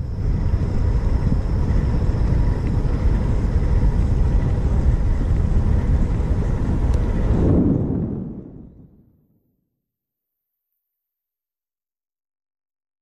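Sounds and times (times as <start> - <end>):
bicycle tyres on asphalt: 0.0 - 8.8
wind on microphone: 0.0 - 9.3.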